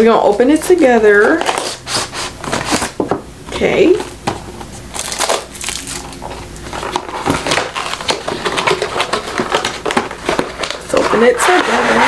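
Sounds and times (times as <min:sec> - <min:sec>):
cardboard box scraping and crinkling: 0:06.7 - 0:12.0.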